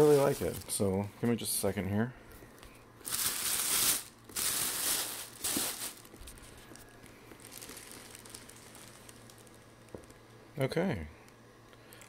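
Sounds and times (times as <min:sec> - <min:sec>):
plastic bag crinkling: 0:00.0 - 0:00.9, 0:03.0 - 0:10.2.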